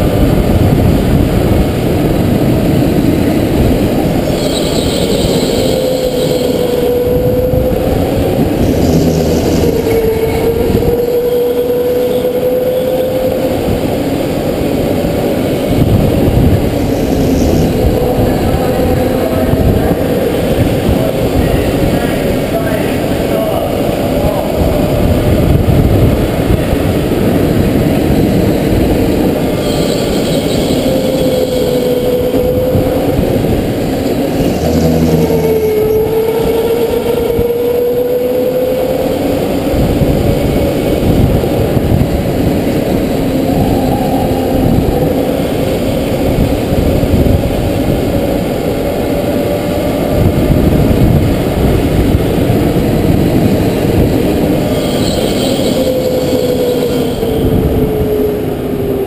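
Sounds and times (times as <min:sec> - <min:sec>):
steady rush of noise: 0:00.0 - 0:59.0
go-kart motor at speed: 0:02.2 - 0:12.6, 0:30.8 - 0:38.6.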